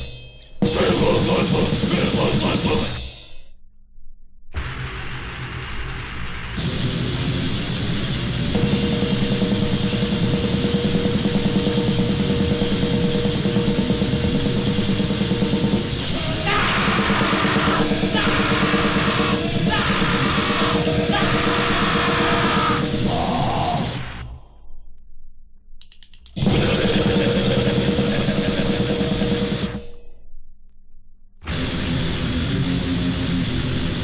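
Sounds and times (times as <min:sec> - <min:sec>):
distorted grindcore guitar and drums: 0:00.0 - 0:03.4, 0:04.6 - 0:24.3, 0:26.4 - 0:29.9, 0:31.4 - 0:34.0
harsh yelled vocals: 0:00.7 - 0:03.2, 0:16.0 - 0:24.2.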